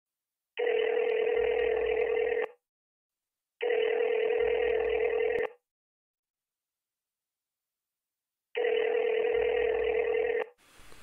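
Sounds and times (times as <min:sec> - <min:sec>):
telephone ringing tone: 0:00.6 - 0:02.6, 0:03.6 - 0:05.6, 0:08.6 - 0:10.6.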